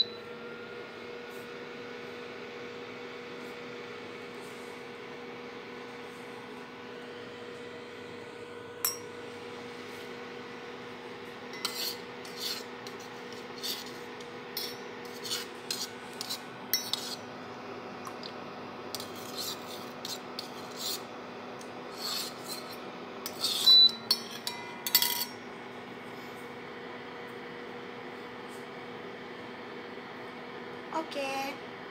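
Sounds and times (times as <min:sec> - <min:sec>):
electric cooktop hum: 0:00.0 - 0:31.9
metal spoon scraping a pot: 0:11.6 - 0:17.2, 0:18.9 - 0:21.1, 0:21.9 - 0:25.4.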